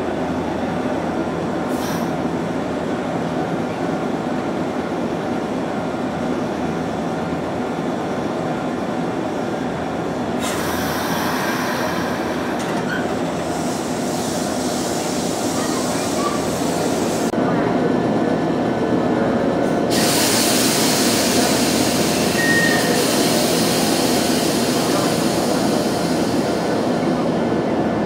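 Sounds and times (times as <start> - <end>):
electric train rumbling: 0.0 - 28.0
hiss: 10.4 - 12.6, 13.4 - 17.3, 19.9 - 27.0.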